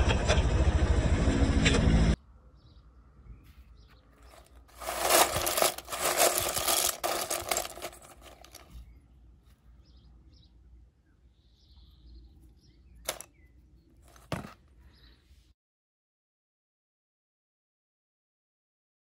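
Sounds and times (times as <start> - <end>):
plastic toys clattering in steel bowl: 4.3 - 8.8, 13.1 - 13.3.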